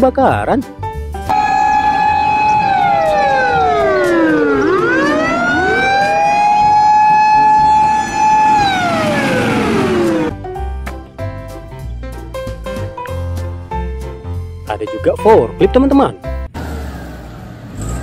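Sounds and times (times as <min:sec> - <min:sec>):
second siren wailing: 0:01.3 - 0:10.3
fire engine siren wailing: 0:01.3 - 0:10.4.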